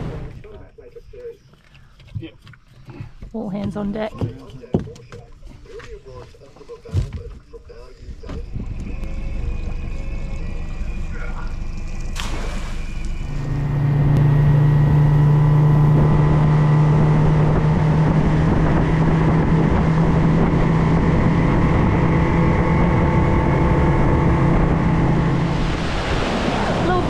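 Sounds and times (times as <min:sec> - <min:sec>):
outboard motor running: 0:08.0 - 0:27.0.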